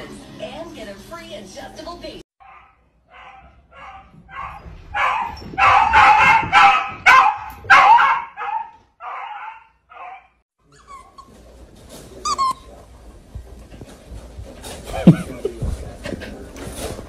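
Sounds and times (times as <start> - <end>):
dog barking rapidly: 2.4 - 10.4
brief high squeak: 12.2 - 12.7.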